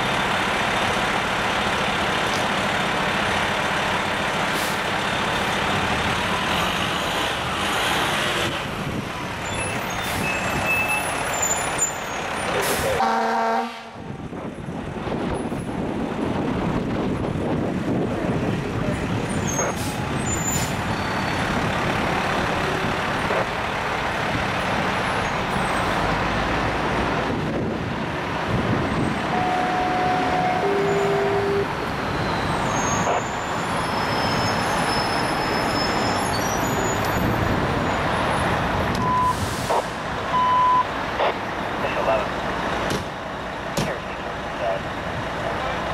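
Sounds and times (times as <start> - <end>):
fire truck engine running: 0.0 - 13.0, 14.0 - 45.9
road traffic noise: 0.0 - 45.9
short steady tones: 29.3 - 31.7.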